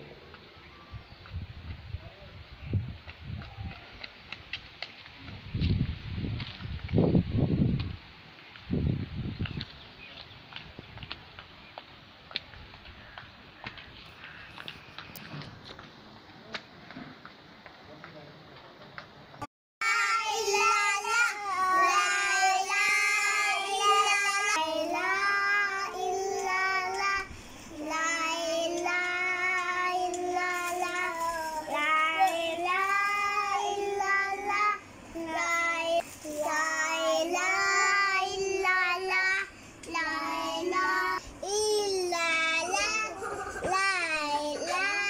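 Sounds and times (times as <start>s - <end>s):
girl singing unaccompanied: 19.8s - 45.0s.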